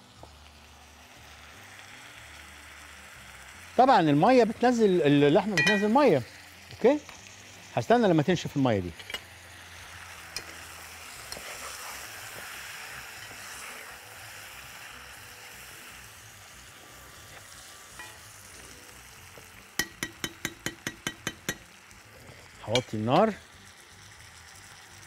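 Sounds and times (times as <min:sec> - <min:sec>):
meat sizzling in a pot: 0:00.0 - 0:25.0
spoon knocking against pot: 0:05.6 - 0:06.0, 0:19.8 - 0:21.6.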